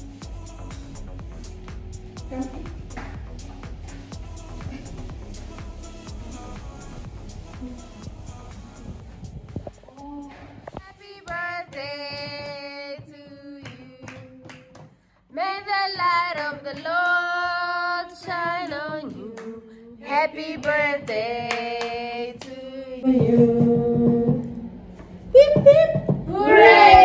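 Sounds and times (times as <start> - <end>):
women and children singing: 10.0 - 24.7
hand clapping: 10.7 - 12.7, 13.6 - 15.0, 20.6 - 22.6.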